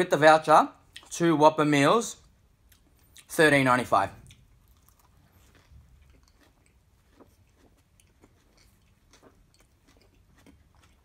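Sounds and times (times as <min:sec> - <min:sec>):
faint chewing with wet mouth clicks: 0:00.8 - 0:01.2, 0:02.6 - 0:03.4, 0:04.2 - 0:11.0.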